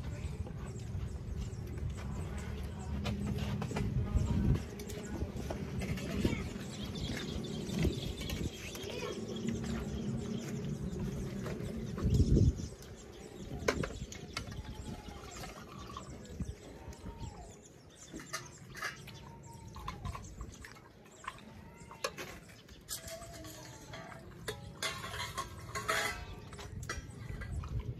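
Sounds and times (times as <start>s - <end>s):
steel plates and spoon clinking: 21.9s - 27.8s.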